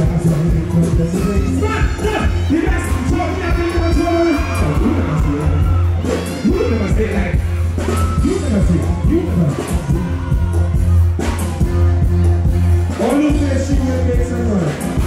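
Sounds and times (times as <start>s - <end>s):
man singing and chanting: 0.0s - 5.6s
heavy bass: 0.0s - 15.0s
live music through a pa: 0.0s - 15.0s.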